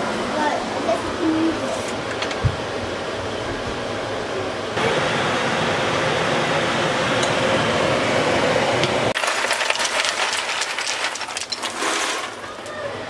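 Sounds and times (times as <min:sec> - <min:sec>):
ice cubes clinking into water: 0:09.2 - 0:12.8.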